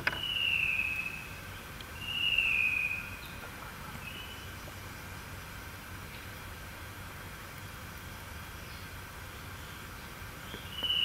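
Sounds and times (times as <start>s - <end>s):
bird whistling: 0.0s - 1.4s, 2.0s - 3.4s, 4.0s - 4.5s, 10.5s - 11.0s
steady background hiss: 0.0s - 11.0s.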